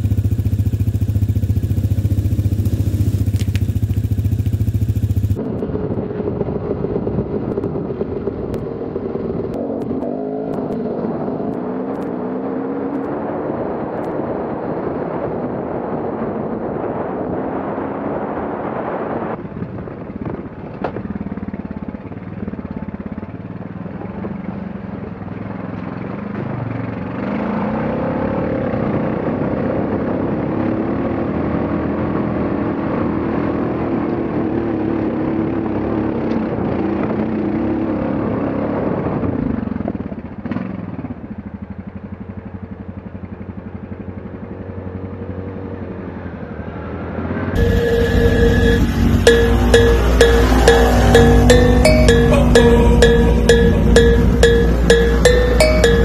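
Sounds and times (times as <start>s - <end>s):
dirt bike and atv engines revving: 26.3s - 36.3s.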